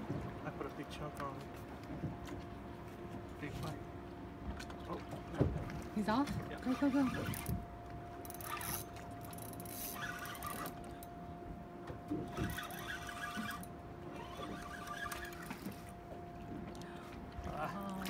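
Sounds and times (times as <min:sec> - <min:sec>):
fishing reel winding: 0:06.8 - 0:07.6, 0:08.2 - 0:10.8, 0:12.3 - 0:15.5
faint steady hum: 0:07.2 - 0:18.0.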